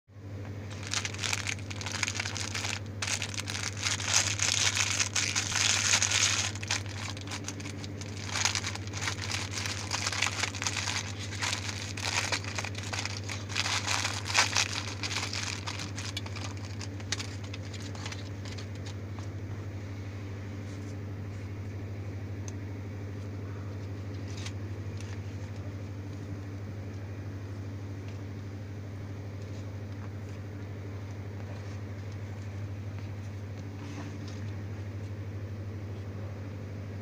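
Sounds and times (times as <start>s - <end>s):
steady low hum: 0.1s - 37.0s
plastic bag crinkling: 0.7s - 19.0s.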